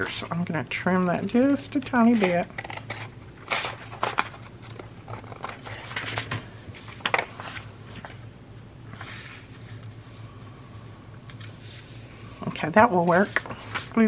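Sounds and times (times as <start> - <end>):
paper rustling: 1.8 - 8.2, 8.9 - 10.3.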